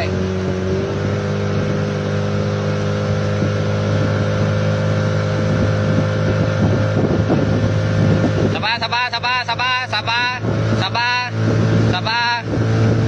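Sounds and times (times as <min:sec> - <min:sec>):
boat engine droning: 0:00.0 - 0:13.0
water noise: 0:00.0 - 0:13.0
wind noise: 0:00.0 - 0:13.0.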